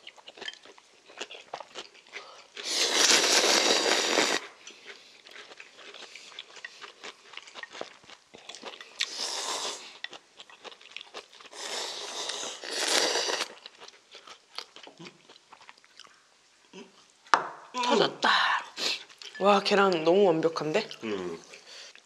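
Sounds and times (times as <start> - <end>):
soft chewing: 0.0 - 17.4, 18.7 - 22.0
people slurping noodles: 2.6 - 4.5, 9.0 - 10.0, 11.5 - 13.6.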